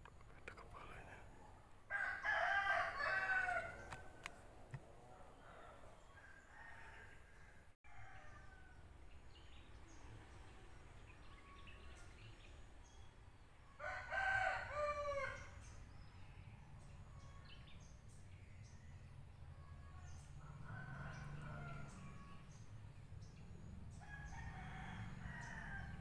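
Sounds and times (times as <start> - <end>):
rooster crowing: 1.9 - 4.3, 5.4 - 8.8, 13.8 - 15.5, 19.6 - 22.4, 24.0 - 26.0.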